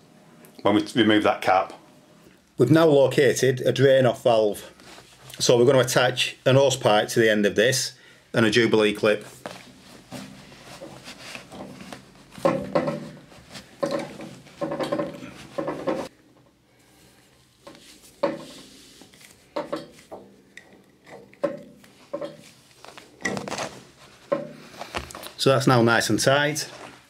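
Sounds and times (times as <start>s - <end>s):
hose rubbing and scraping: 9.2s - 16.1s, 17.0s - 20.2s, 21.8s - 25.3s
small clicks and knocks: 13.8s - 16.5s, 19.1s - 23.7s.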